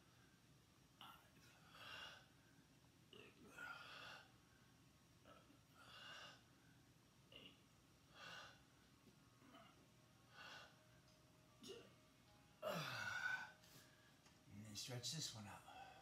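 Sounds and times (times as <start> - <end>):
man breathing deeply: 1.5 - 2.5, 3.4 - 4.8, 5.7 - 6.8, 8.1 - 8.8, 10.2 - 10.9, 12.6 - 14.2.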